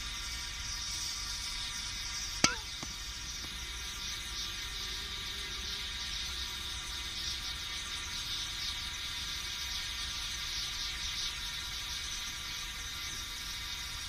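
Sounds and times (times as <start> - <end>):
burner flame hissing: 0.0 - 14.0
metallic ping of can: 2.4 - 3.6.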